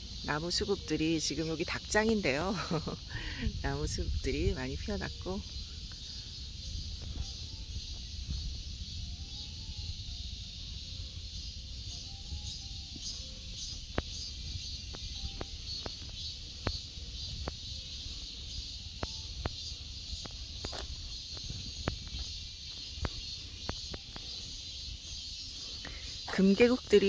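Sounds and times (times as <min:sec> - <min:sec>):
insect chorus: 0:00.0 - 0:27.0
footsteps on gravel: 0:13.1 - 0:24.4.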